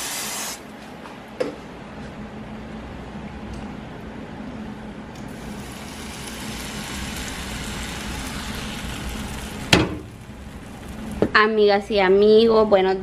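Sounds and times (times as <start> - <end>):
pancakes sizzling in a pan: 5.3 - 11.2.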